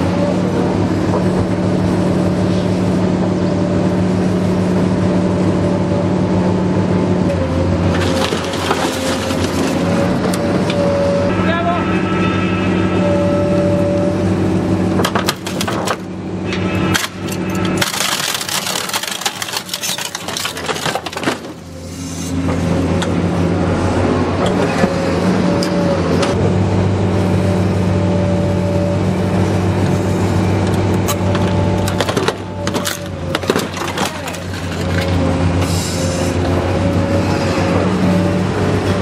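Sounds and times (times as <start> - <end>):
machine engine hum: 0.0 - 39.0
metal crunching and tearing: 16.8 - 21.7, 31.0 - 35.4.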